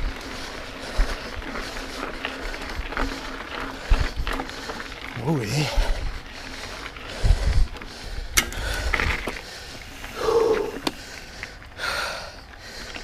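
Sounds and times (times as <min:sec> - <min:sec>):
person breathing hard: 0:03.6 - 0:13.0
low thuds of bike jolting: 0:07.1 - 0:09.6.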